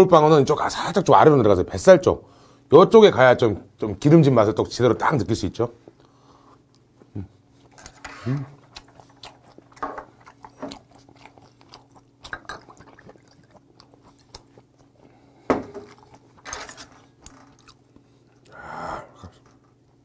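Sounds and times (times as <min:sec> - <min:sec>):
man chewing with wet smacks: 0:06.0 - 0:18.6.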